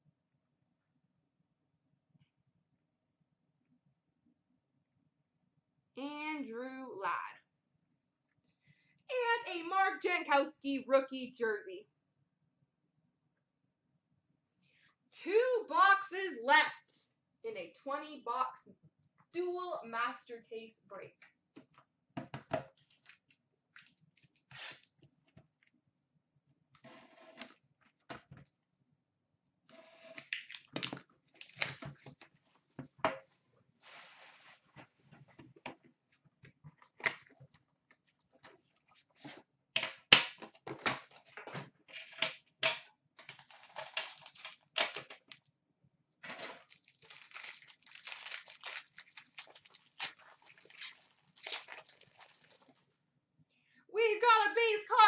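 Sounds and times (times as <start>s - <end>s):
plastic wrapper tearing and crinkling: 30.3s - 32.4s, 43.2s - 45.1s, 46.4s - 52.8s.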